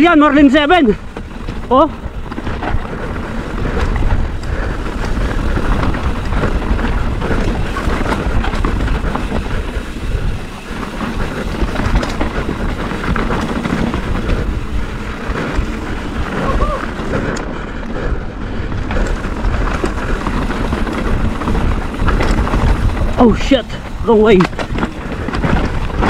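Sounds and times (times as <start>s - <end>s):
bike rolling on rocky trail: 0.0s - 26.0s
wind buffeting microphone: 0.0s - 26.0s
tyres clicking on stones: 18.8s - 26.0s.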